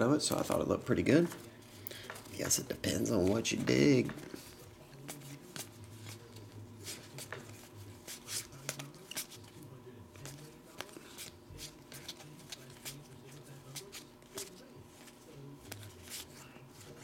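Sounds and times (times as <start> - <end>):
cards sliding against cards: 1.2 - 17.0.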